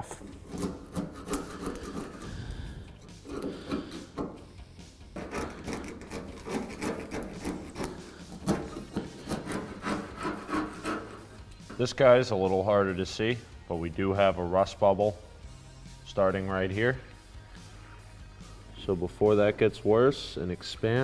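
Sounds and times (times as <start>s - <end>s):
screwdriver scraping paint off metal: 0.1s - 4.6s, 5.2s - 11.9s.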